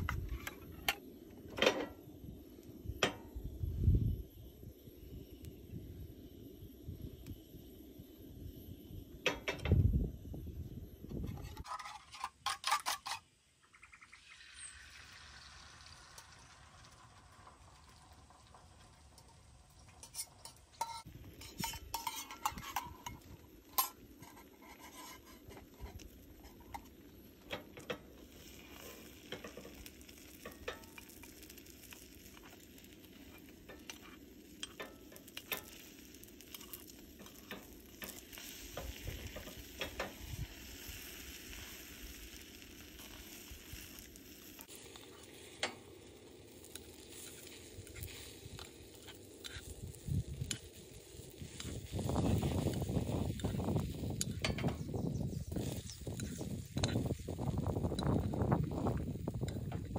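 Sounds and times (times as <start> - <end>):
egg sizzling in pan: 0.0 - 59.9
spoon scraping metal pan: 11.1 - 13.3, 20.0 - 26.9.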